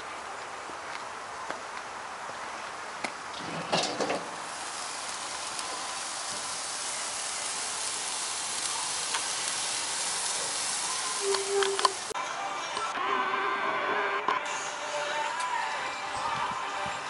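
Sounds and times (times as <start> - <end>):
roast sizzling in smoker: 3.2 - 12.2.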